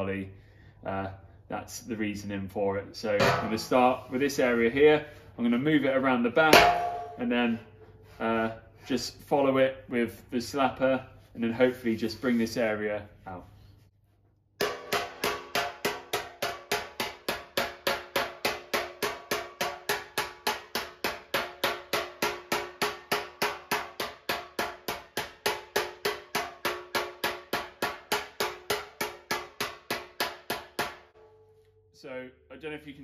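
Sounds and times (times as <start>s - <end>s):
spoon slapping sheet metal: 6.5s - 7.2s.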